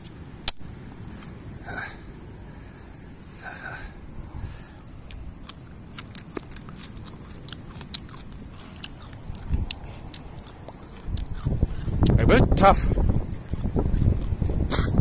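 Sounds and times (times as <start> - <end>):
chewing and crunching fruit: 0.0 - 15.0
wind buffeting microphone: 7.0 - 15.0.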